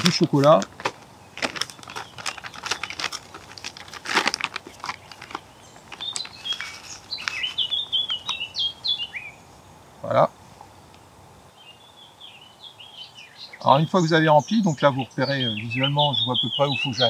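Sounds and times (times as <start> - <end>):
foil bag crinkling: 0.0 - 8.4
small bird chirping: 1.1 - 4.0, 4.7 - 9.7, 11.5 - 17.0.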